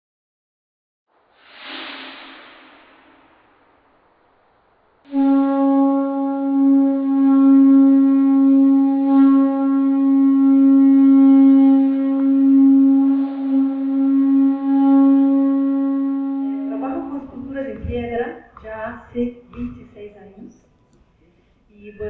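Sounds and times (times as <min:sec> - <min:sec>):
wind instrument long held note: 0:05.1 - 0:17.6.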